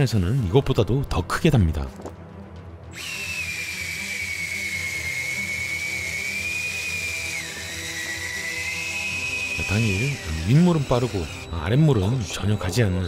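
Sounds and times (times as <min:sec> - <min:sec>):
fishing reel motor whining: 0:03.0 - 0:11.7.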